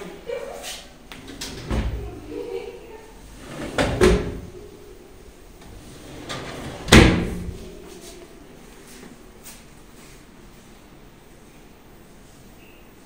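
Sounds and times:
metal drawer banging shut: 1.2s - 2.0s, 3.4s - 4.5s, 5.7s - 7.7s.

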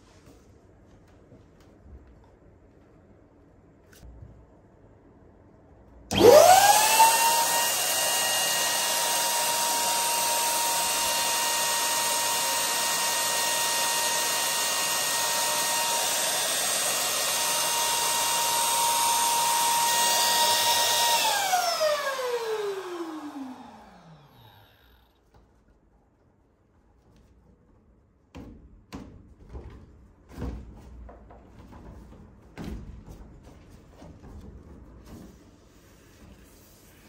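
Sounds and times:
electric pump motor whining: 6.1s - 25.2s.

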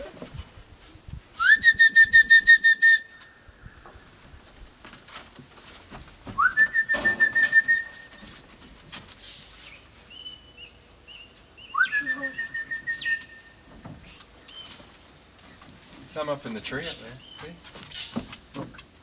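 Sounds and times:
person whistling: 1.4s - 3.2s, 6.4s - 8.1s, 11.8s - 13.4s.

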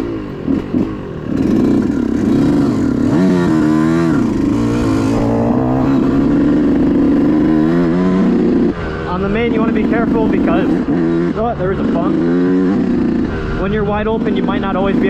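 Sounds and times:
two-stroke motorcycle engine revving: 0.0s - 15.0s.

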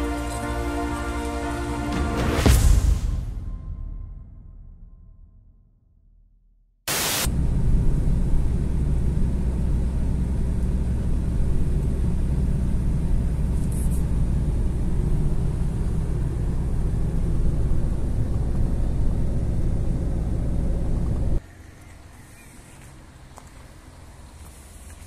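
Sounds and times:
car engine and tyres rumbling: 7.3s - 25.0s.

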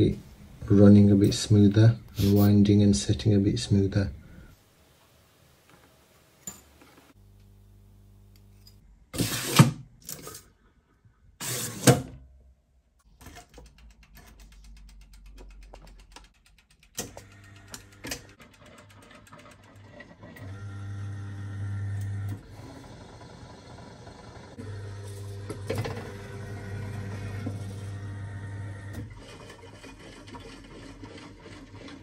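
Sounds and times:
knocks and clatters of handling: 13.0s - 17.3s
timer dial ticking: 13.4s - 19.8s
machine motor humming: 20.4s - 29.0s.

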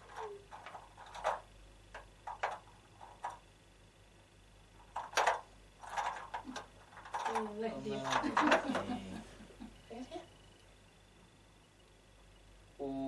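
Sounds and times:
wooden pieces clicking: 0.0s - 3.4s, 4.8s - 8.9s.

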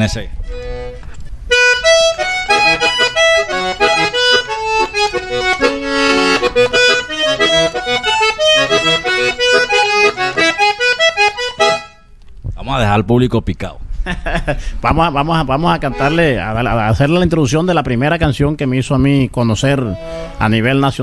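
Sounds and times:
button accordion playing: 0.4s - 12.1s, 15.8s - 16.4s, 19.8s - 20.5s.

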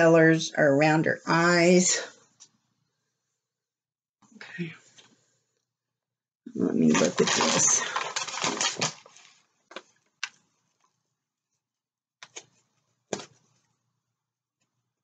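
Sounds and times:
canvas and paper rustling: 6.7s - 10.9s
short paper crackles: 6.8s - 10.0s.

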